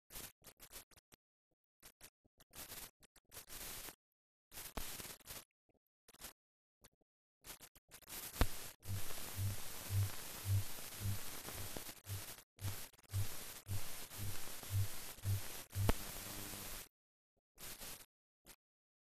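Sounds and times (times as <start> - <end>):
old film soundtrack hiss: 8.1 - 16.9.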